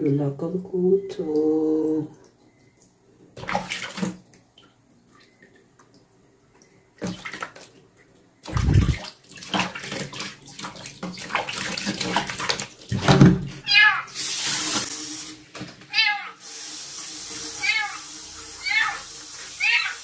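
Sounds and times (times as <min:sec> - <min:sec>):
water splashing in plastic basin: 0:03.3 - 0:06.1, 0:06.9 - 0:16.1.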